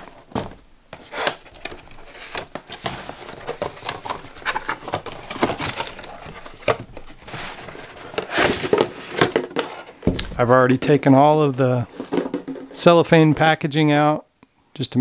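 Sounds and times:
cardboard flaps scraping and rustling: 0:00.0 - 0:10.6.

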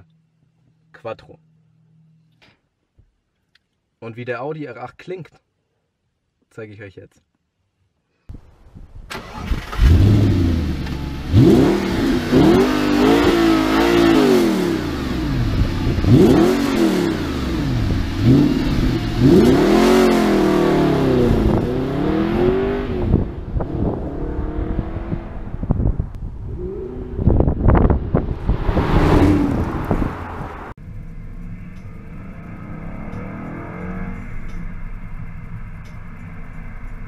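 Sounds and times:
car engine revving hard: 0:09.7 - 0:25.7, 0:26.6 - 0:30.8.

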